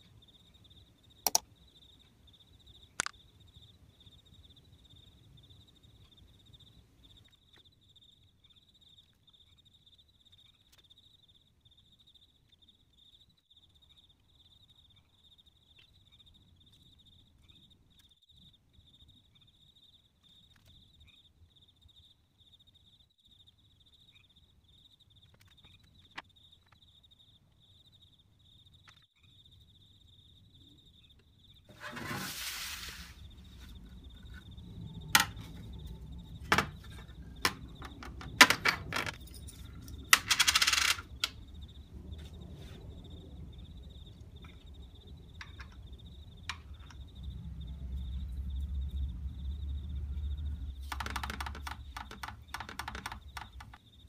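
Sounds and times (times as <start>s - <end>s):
faint high-pitched chirring: 0.0s - 54.0s.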